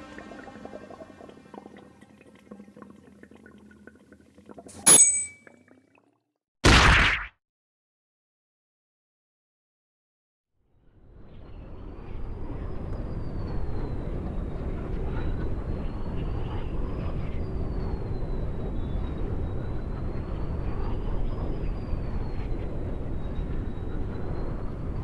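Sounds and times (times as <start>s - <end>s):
wind rumble: 10.8s - 25.0s
high wind whistle: 11.0s - 25.0s.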